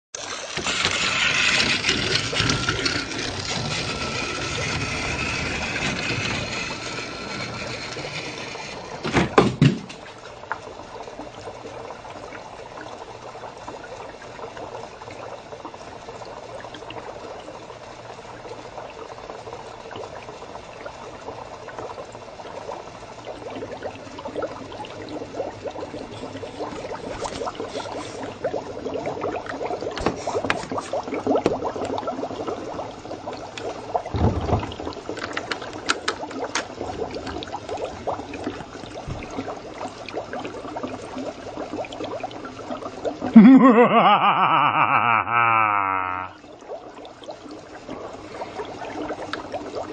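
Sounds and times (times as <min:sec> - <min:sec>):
toy train motor whirring: 0:00.2 - 0:09.1.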